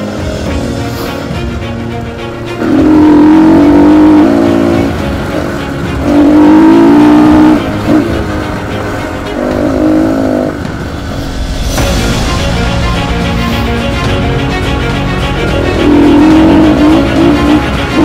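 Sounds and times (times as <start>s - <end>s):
background music: 0.0s - 18.0s
dirt bike engine revving: 2.6s - 8.4s, 15.6s - 18.0s.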